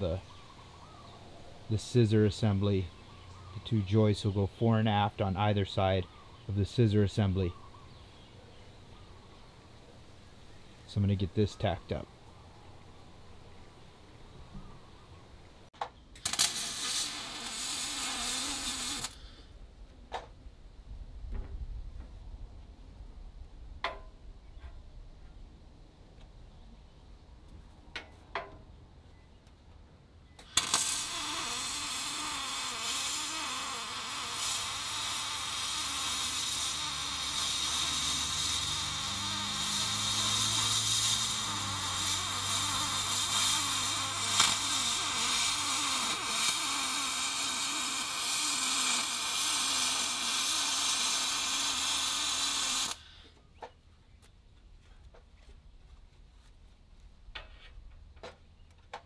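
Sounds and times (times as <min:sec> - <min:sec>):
welding arc crackling hiss: 0:16.2 - 0:19.4, 0:30.4 - 0:53.2.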